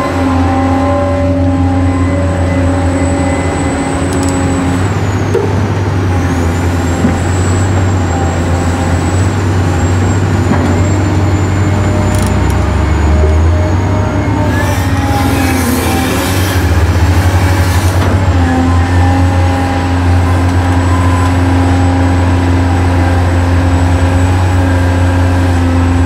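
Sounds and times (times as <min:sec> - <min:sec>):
toy excavator electric motors whining: 0:00.0 - 0:05.4, 0:11.0 - 0:26.0.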